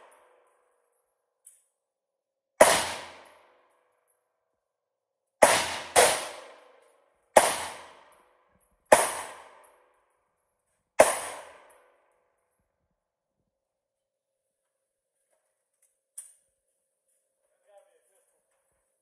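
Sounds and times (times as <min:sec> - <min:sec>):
rifle shots echoing indoors: 0:02.6 - 0:03.8, 0:05.4 - 0:10.0, 0:11.0 - 0:12.1.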